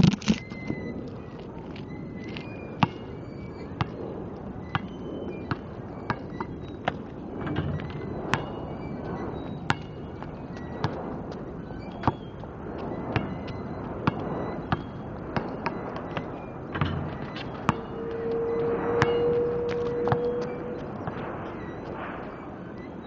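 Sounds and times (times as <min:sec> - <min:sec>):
basketball bouncing on asphalt: 0:00.1 - 0:22.8.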